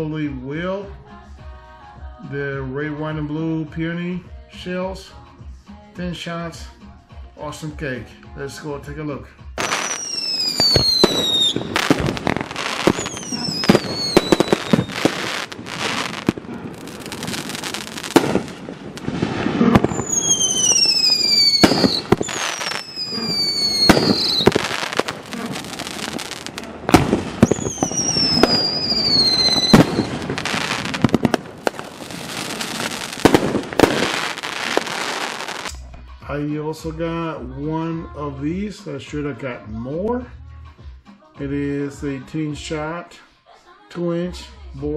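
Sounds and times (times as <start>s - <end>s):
firework burst bangs: 9.6s - 35.7s
falling whistling tones: 9.7s - 11.7s, 12.9s - 15.3s, 19.9s - 24.6s, 27.4s - 30.2s
firework launch thumps: 10.6s - 35.8s.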